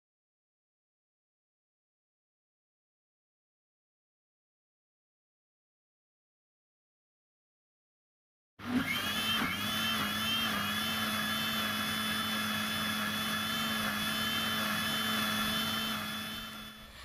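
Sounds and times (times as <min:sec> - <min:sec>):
mixer grinder motor whining: 0:08.6 - 0:17.0.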